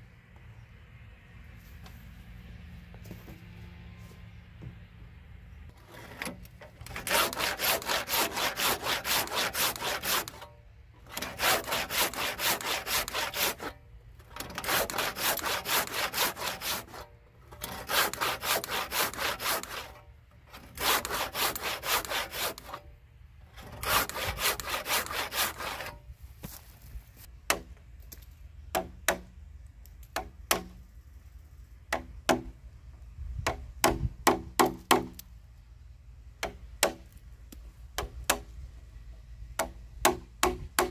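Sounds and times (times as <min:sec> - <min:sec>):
handsaw cutting timber: 0:05.7 - 0:22.8, 0:23.5 - 0:26.6.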